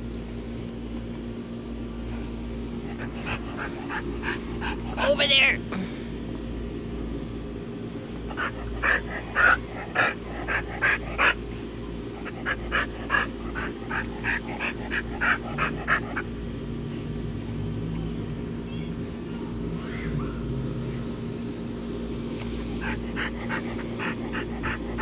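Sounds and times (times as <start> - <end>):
steady low hum: 0.0 - 25.0
dog panting: 2.7 - 5.3, 8.2 - 16.3, 22.6 - 25.0.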